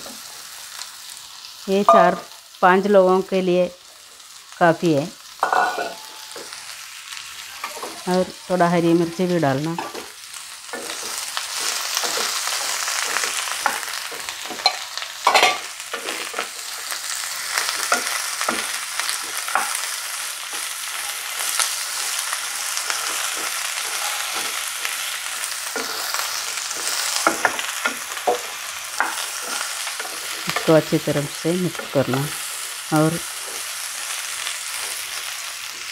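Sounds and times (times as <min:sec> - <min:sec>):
vegetables sizzling in oil: 0:00.0 - 0:35.9
spatula scraping a pan: 0:09.8 - 0:31.0.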